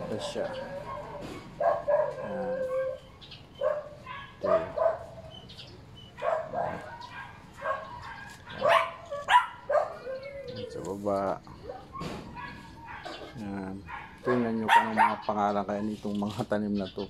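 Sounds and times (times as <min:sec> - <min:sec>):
dog whining: 0:00.0 - 0:15.2
dog barking: 0:00.1 - 0:05.3, 0:06.1 - 0:10.2, 0:11.6 - 0:15.9.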